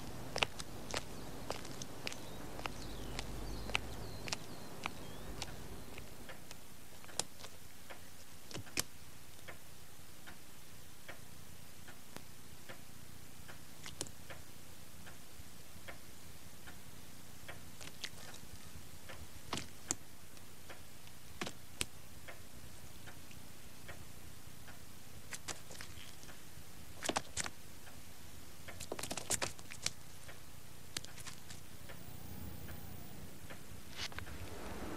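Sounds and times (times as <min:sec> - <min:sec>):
sharp clicks: 0:00.0 - 0:09.6
soft regular ticking: 0:00.0 - 0:34.9.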